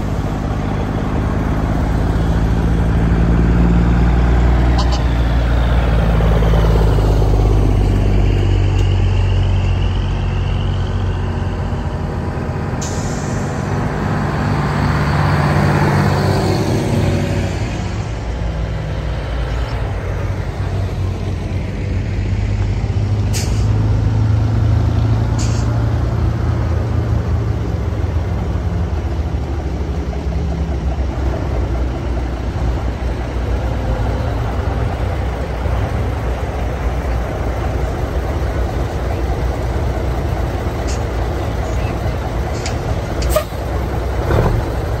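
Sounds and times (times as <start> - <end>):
heavy truck engines passing: 0.0 - 45.0
air brake hisses: 12.8 - 13.7.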